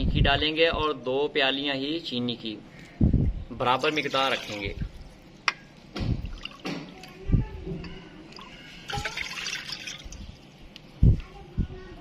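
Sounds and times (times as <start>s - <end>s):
water pouring and splashing: 3.7s - 7.1s, 8.3s - 10.3s.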